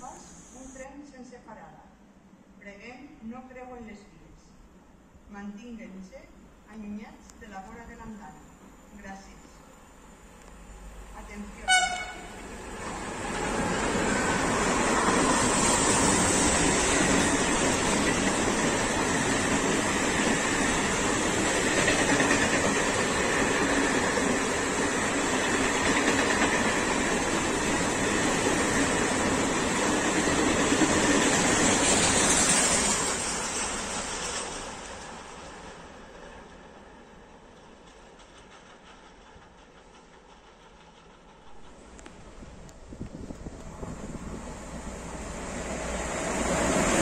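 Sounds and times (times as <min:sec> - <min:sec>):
freight train wheels on rails: 0:11.7 - 0:47.0.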